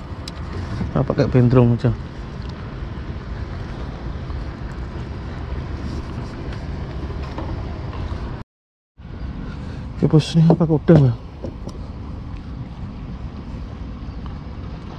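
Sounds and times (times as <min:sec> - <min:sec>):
boat engine running: 0:00.0 - 0:08.4, 0:09.1 - 0:14.9
wind on microphone: 0:00.0 - 0:08.4.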